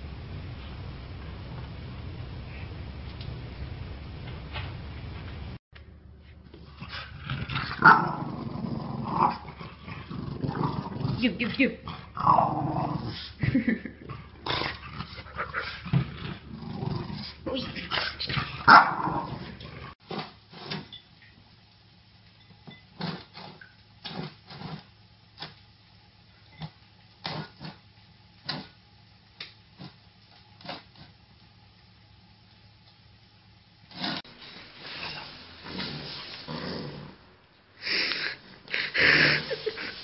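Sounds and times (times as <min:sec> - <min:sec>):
dog growling and barking: 0:06.7 - 0:20.0, 0:35.6 - 0:37.3, 0:38.8 - 0:39.9.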